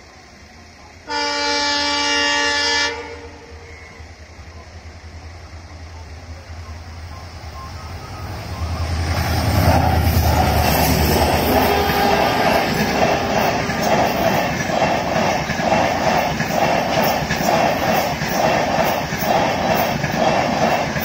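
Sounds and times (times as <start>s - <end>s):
diesel locomotive engine droning: 0.0s - 21.0s
train wheels clattering over rail joints: 8.8s - 21.0s.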